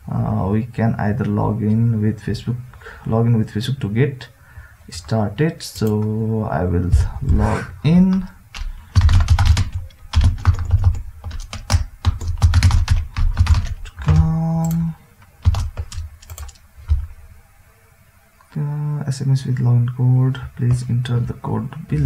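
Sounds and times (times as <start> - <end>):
short steady hum: 7.0 - 7.8
keyboard keys clicking: 8.1 - 17.1.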